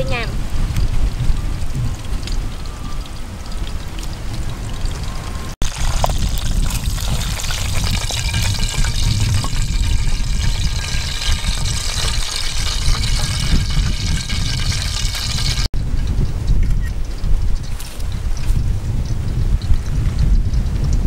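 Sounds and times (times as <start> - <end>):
hot oil sizzling and crackling: 0.2 - 15.7
oil dripping into pot: 2.3 - 15.7.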